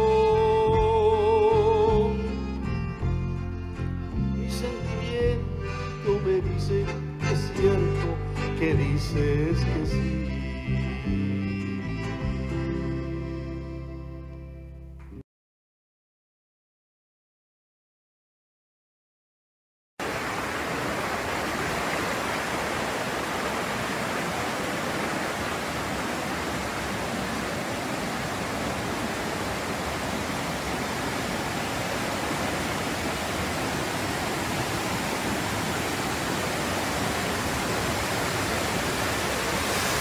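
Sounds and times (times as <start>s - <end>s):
waterfall rushing: 20.0s - 40.0s.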